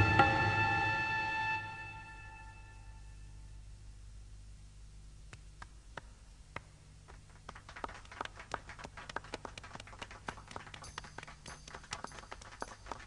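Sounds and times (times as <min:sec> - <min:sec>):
low hum: 0:00.0 - 0:07.8.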